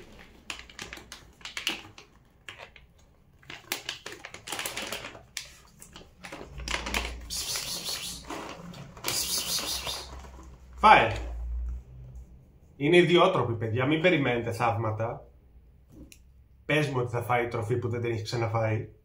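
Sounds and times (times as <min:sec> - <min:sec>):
bag crinkling and rustling: 0:00.0 - 0:11.6
dry food bag crackling: 0:00.0 - 0:11.6.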